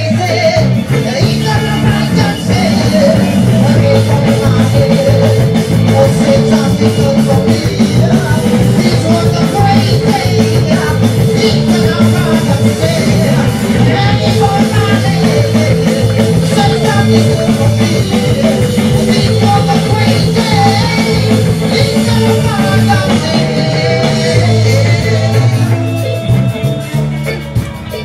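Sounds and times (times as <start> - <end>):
live reggae band playing: 0.0 - 28.0
person singing: 0.0 - 28.0.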